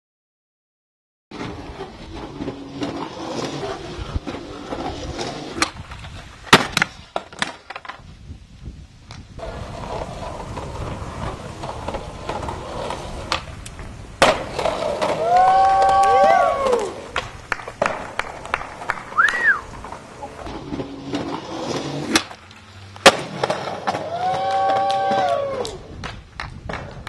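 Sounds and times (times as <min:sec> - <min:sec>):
skateboard wheels rolling on concrete: 0:01.3 - 0:27.0
skateboard clacking and slamming down: 0:06.5 - 0:08.0, 0:09.4 - 0:22.4, 0:23.0 - 0:27.0.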